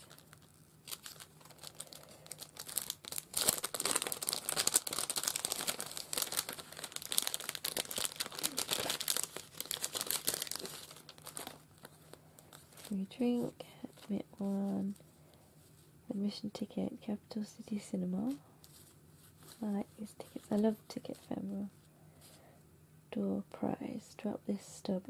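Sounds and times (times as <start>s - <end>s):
cellophane packet crinkling: 0.0s - 15.0s.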